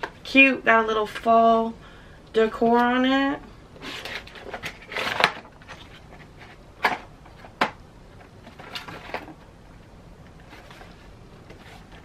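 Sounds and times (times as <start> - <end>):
cardboard rustling: 3.8 - 9.5, 10.3 - 12.0.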